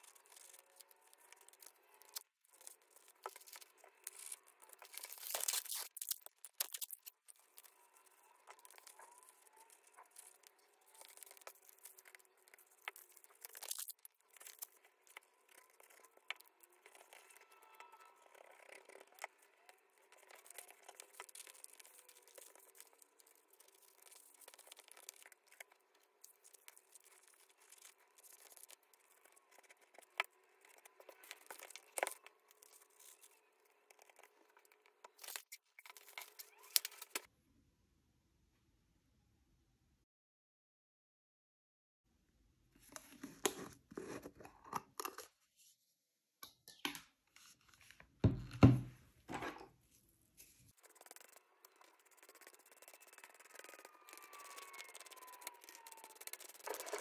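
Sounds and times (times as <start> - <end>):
paper rustling and crinkling: 0.0 - 37.3, 50.4 - 57.0
paper tearing: 0.0 - 37.3, 50.7 - 57.0.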